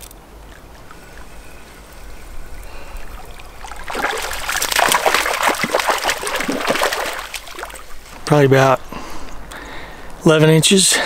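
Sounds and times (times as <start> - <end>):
fish splashing in water: 0.0 - 8.2.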